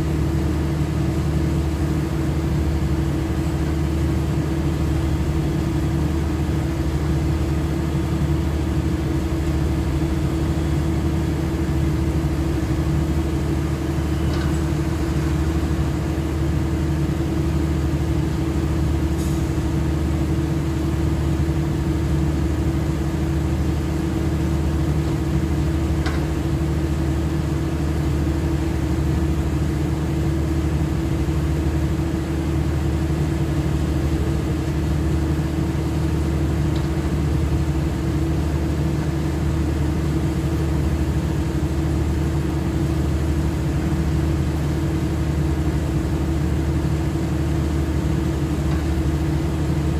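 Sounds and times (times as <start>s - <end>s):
diesel engine droning: 0.0s - 49.9s.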